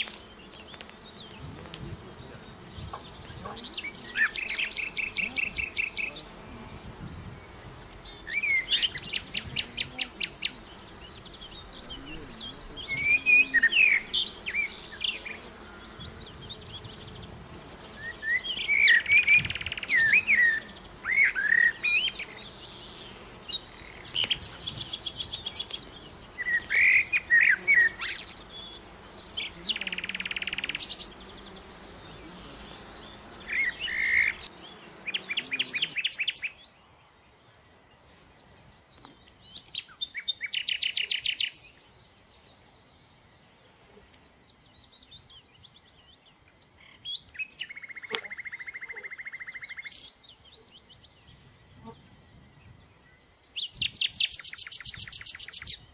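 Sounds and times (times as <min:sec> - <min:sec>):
background hiss: 0:00.0 - 0:48.7, 0:49.3 - 0:55.9
songbird singing: 0:00.0 - 0:55.9.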